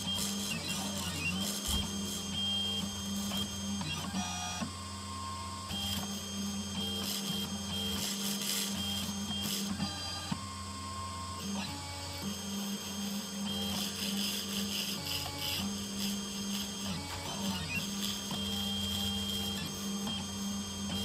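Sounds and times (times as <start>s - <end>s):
stepper motors whining: 0.0s - 4.2s, 13.4s - 21.0s
spindle motor humming: 0.0s - 21.0s.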